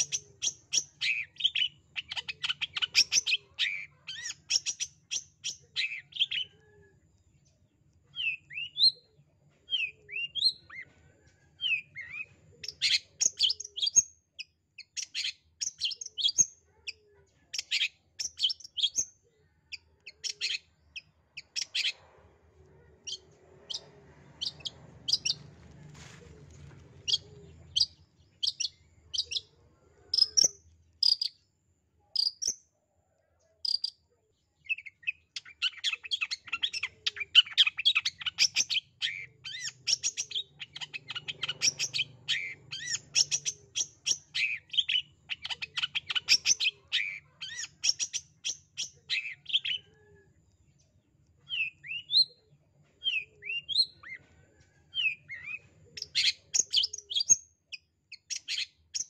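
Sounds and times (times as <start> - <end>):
bird chattering and whistling: 0.0 - 6.6, 11.6 - 16.9, 19.8 - 22.0, 27.0 - 31.3, 34.7 - 49.9, 51.5 - 52.4, 55.0 - 59.0.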